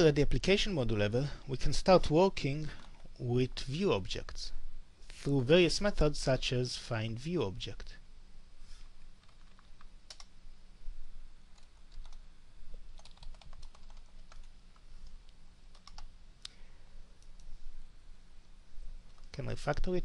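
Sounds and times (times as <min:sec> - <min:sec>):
low steady hum: 0:00.0 - 0:20.0
computer keyboard typing: 0:09.2 - 0:10.3, 0:11.6 - 0:12.2, 0:13.0 - 0:14.5, 0:15.7 - 0:16.1.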